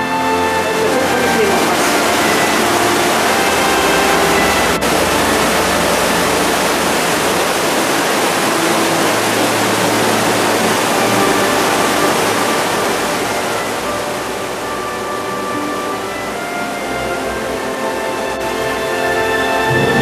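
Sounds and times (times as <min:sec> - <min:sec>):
torrent and waterfalls rushing: 0:00.0 - 0:20.0.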